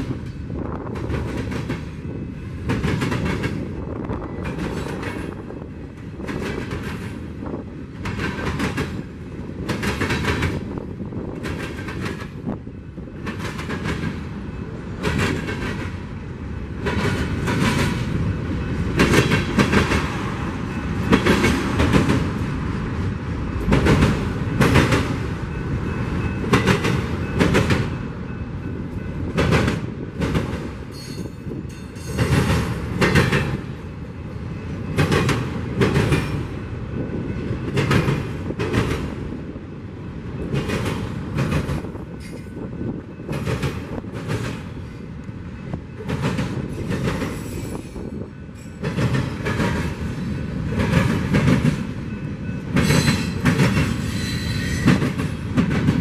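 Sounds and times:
freight train rumbling past: 0.0s - 56.0s
wheels clacking over rail joints: 45.6s - 56.0s.

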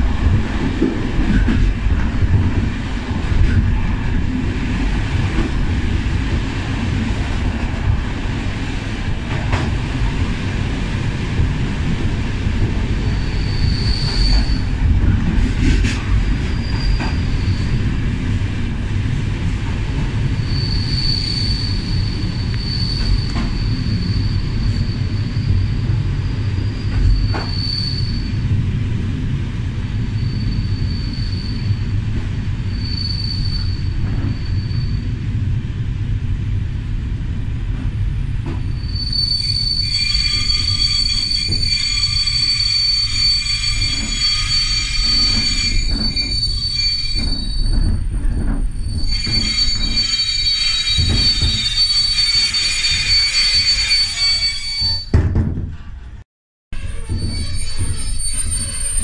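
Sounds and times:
train carriages rumbling on rails: 0.0s - 56.2s, 56.8s - 59.0s
high wheel squeal: 13.1s - 14.7s, 16.3s - 17.8s, 20.4s - 25.7s, 26.3s - 28.4s, 30.2s - 31.8s, 32.7s - 35.1s, 38.7s - 55.2s, 56.8s - 59.0s.

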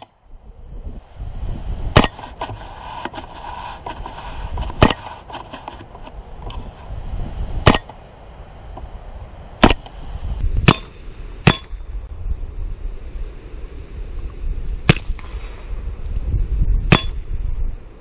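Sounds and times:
steel target ringing: 0.0s - 0.3s, 1.9s - 2.2s, 7.6s - 8.1s, 9.6s - 9.9s, 10.6s - 12.0s, 16.9s - 17.4s.

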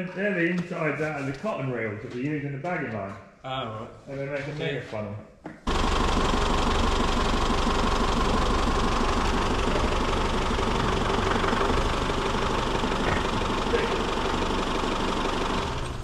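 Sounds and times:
diesel engine idling: 5.7s - 16.0s.

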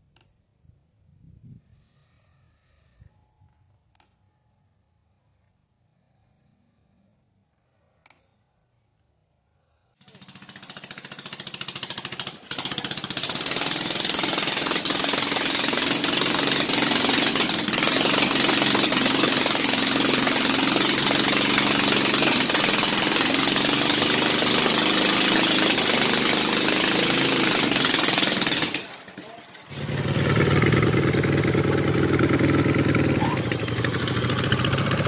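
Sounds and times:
small engine rattling: 10.0s - 35.0s.

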